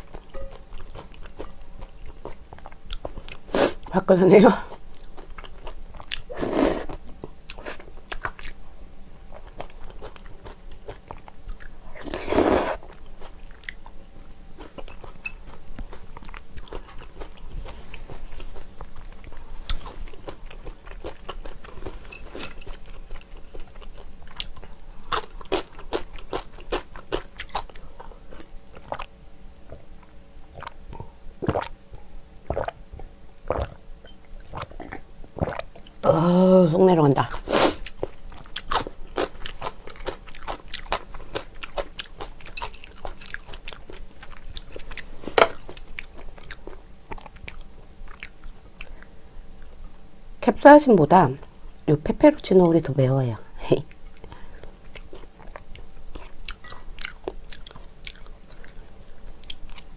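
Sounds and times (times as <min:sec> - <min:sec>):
wet chewing and mouth smacks: 0:32.5 - 0:32.8, 0:53.9 - 0:59.9.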